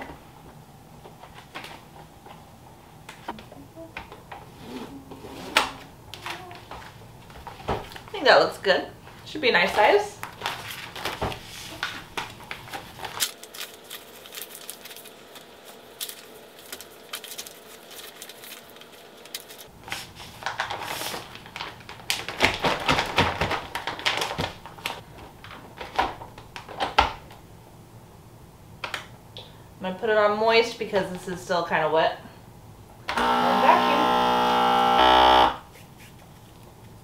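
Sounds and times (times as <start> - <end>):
plastic bag crinkling: 10.2 - 26.0.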